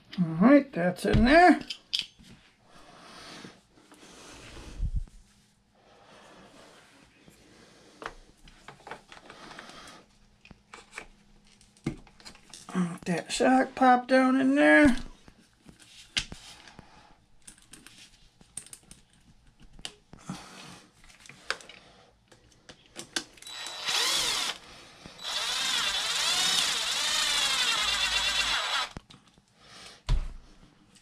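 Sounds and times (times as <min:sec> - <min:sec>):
power driver running a screw: 0:23.4 - 0:24.6, 0:25.2 - 0:29.0.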